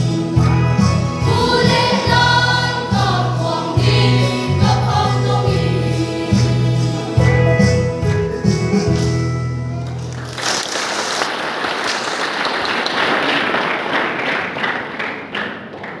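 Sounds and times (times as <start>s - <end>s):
choir singing with instruments: 0.0s - 8.2s
audience applause: 9.8s - 16.0s.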